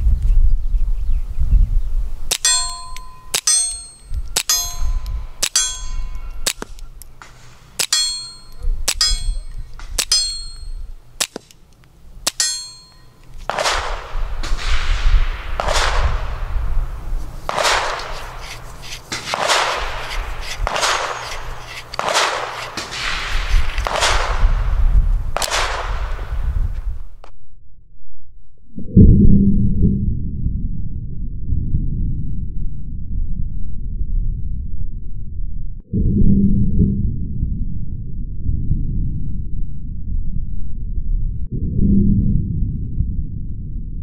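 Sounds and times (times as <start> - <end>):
clanging metallic ring: 2.3 - 11.5, 12.3 - 13.6
suppressed pistol shots: 2.3 - 24.7, 25.4 - 26.4.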